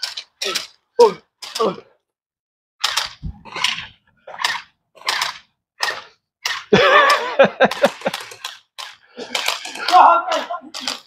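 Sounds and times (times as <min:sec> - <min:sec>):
person shouting: 0:09.8 - 0:10.7.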